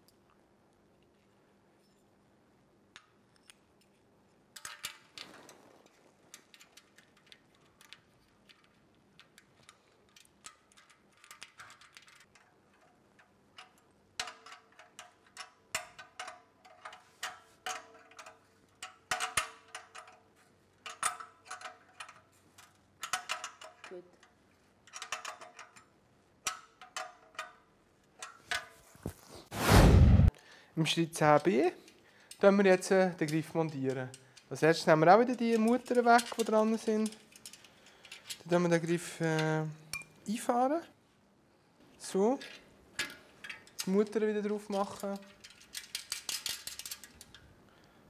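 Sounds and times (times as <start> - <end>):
wrench clinking against metal nuts: 33.2 - 38.6.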